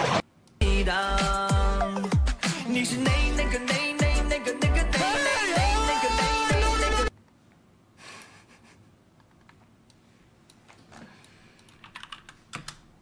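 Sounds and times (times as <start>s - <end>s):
song with singing: 0.6s - 7.1s
keyboard and mouse clicks: 9.2s - 12.9s.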